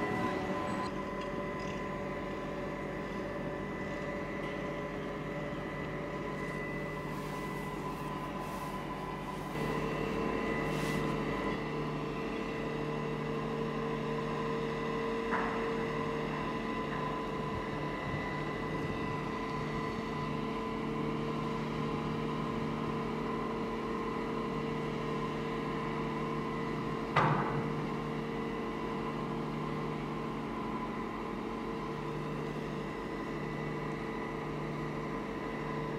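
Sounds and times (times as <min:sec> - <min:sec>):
diesel engine droning: 0:00.0 - 0:12.6.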